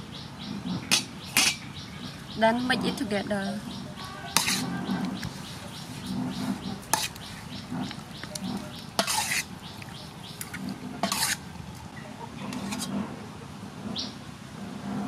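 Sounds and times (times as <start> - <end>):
wet squishing of squid by hand: 4.4 - 11.4.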